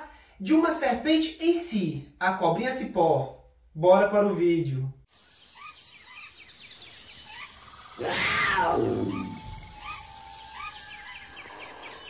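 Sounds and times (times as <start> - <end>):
birds chirping and trilling: 5.1 - 12.0
big cat roaring: 8.0 - 12.0.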